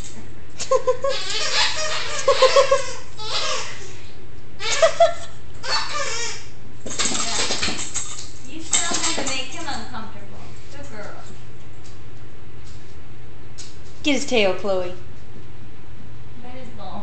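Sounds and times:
person giggling: 0:00.6 - 0:01.4, 0:02.1 - 0:03.8, 0:04.6 - 0:05.4.

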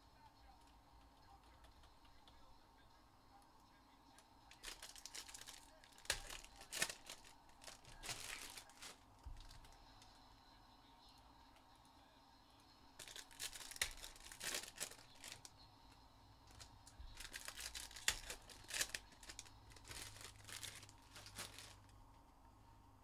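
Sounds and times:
plastic wrappers crinkling: 0:04.5 - 0:10.1, 0:13.0 - 0:15.5, 0:16.5 - 0:22.0.

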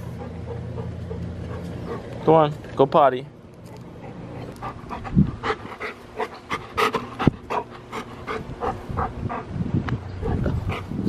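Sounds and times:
dog panting: 0:00.0 - 0:02.4, 0:03.6 - 0:09.6, 0:10.2 - 0:11.0.

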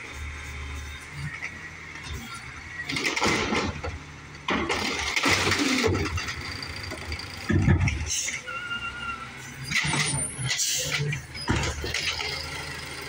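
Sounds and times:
garbage truck engine humming: 0:00.0 - 0:13.0
trash cart rattling: 0:02.8 - 0:08.3, 0:09.6 - 0:12.6.

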